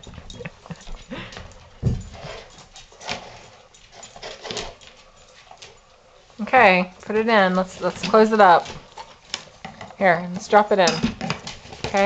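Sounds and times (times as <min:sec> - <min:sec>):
dog crunching dry kibble: 0:06.6 - 0:12.0.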